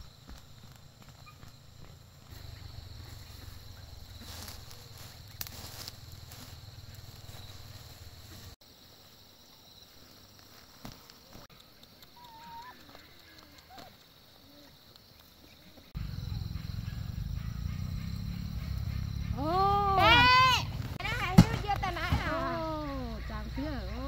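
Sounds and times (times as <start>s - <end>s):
low steady rumble: 16.0s - 21.0s.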